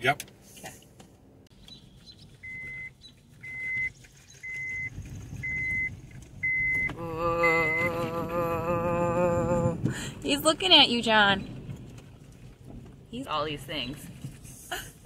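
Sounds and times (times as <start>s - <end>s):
low engine rumble: 0.0s - 15.0s
car warning chime beeping: 2.4s - 8.1s.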